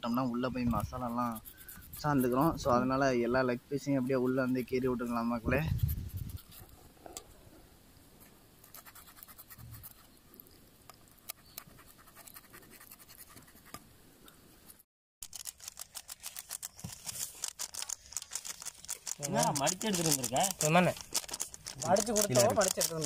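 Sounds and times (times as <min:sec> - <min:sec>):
knife scraping raw chicken: 0:00.7 - 0:02.6
fast light ticks: 0:17.4 - 0:23.0.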